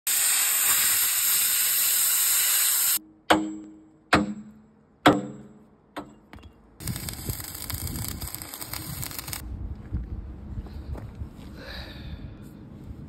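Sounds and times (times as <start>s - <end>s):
loud steady hiss: 0.1s - 3.0s
hammer striking steel: 3.0s - 6.6s.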